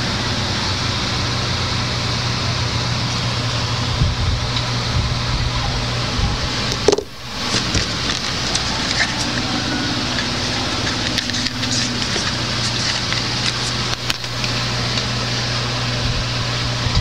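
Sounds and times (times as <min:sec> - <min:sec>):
low hum: 0:00.0 - 0:17.0
steady hiss: 0:05.9 - 0:16.7.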